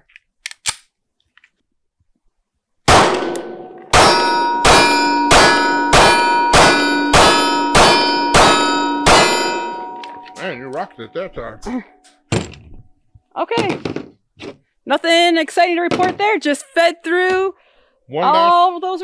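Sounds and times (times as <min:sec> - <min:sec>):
pistol shots: 0:02.9 - 0:09.7
metallic ring of steel target: 0:02.9 - 0:11.2.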